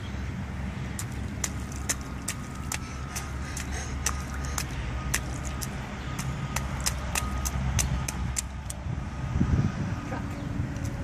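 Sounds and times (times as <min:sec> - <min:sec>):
steady low rumble: 0:00.0 - 0:11.0
footsteps splashing in puddle: 0:00.7 - 0:09.3.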